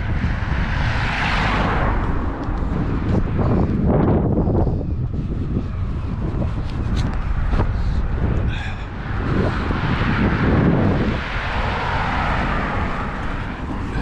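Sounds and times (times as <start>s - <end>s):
rushing noise: 0.0s - 14.0s
wind rumbling on microphone: 0.0s - 14.0s.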